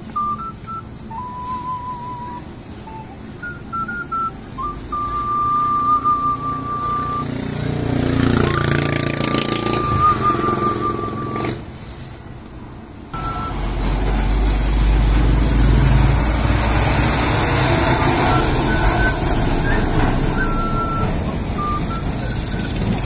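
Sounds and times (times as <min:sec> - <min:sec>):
truck passing by: 0:00.0 - 0:23.0
recorder melody: 0:13.2 - 0:13.7, 0:18.0 - 0:22.4.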